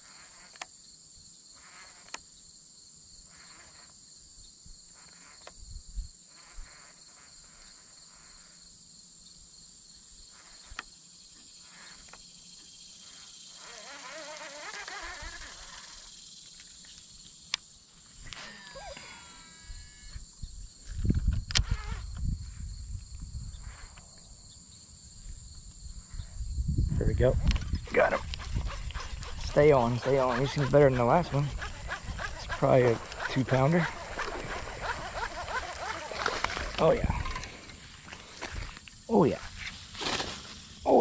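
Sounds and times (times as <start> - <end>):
insects chirring: 0.0 - 41.0
rustling: 27.6 - 40.8.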